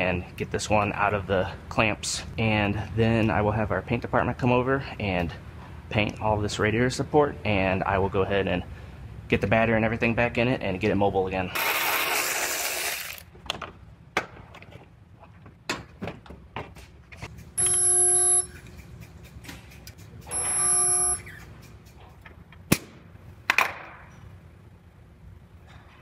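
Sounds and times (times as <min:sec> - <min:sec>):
spot welder humming: 0:17.6 - 0:18.8, 0:20.3 - 0:21.5.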